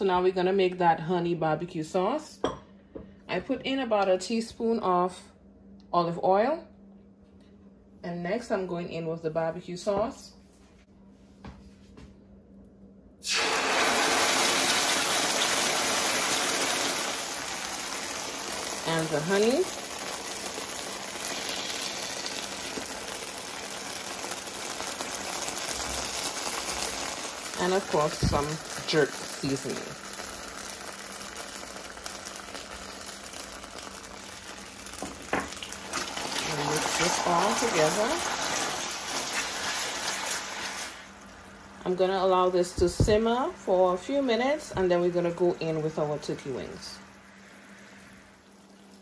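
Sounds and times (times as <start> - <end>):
sauce sizzling in hot oil: 13.2 - 49.0.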